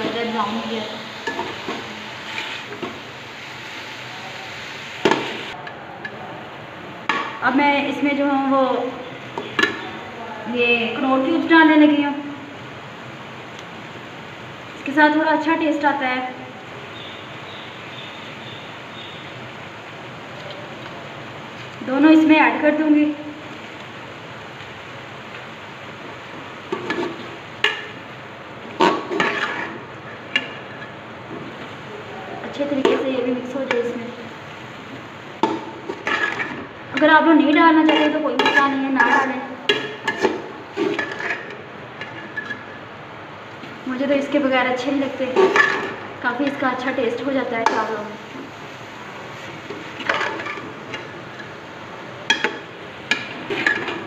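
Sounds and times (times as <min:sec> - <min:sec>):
vegetables sizzling in a pot: 0:00.0 - 0:05.7, 0:06.4 - 0:54.0
metal spatula scraping a pot: 0:01.2 - 0:02.8, 0:28.8 - 0:29.8, 0:35.9 - 0:36.6, 0:37.5 - 0:42.7.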